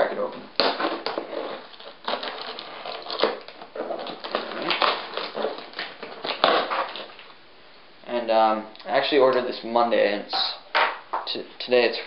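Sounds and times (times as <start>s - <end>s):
packing tape ripping off cardboard: 0.6s - 7.4s.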